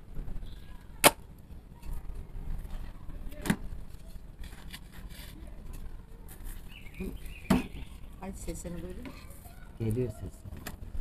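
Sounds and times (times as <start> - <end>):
light scraping of flatbread: 3.8 - 8.0.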